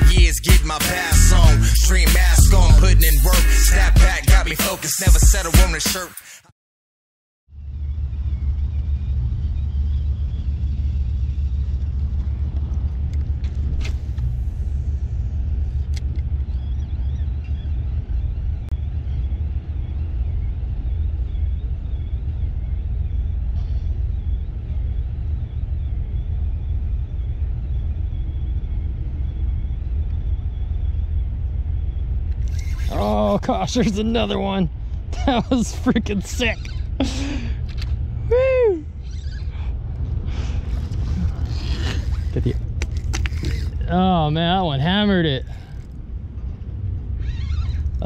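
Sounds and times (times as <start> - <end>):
boat engine idling: 32.4 - 46.4.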